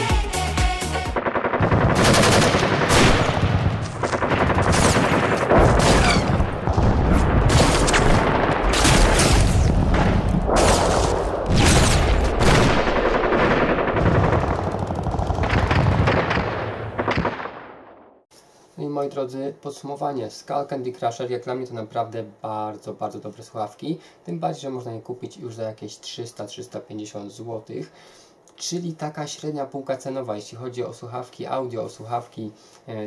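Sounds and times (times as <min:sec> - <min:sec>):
automatic gunfire bursts: 0:01.2 - 0:09.2.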